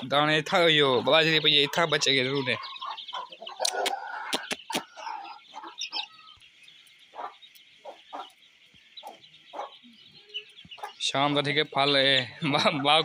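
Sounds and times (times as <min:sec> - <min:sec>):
chickens clucking: 0:00.0 - 0:13.0
chicks chirring: 0:00.0 - 0:13.0
sharp clicks: 0:03.6 - 0:04.9.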